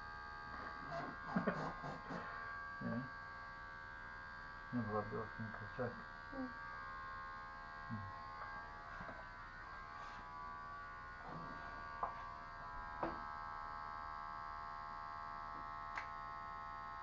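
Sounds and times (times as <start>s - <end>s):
electric hair clipper running: 0.0s - 17.0s.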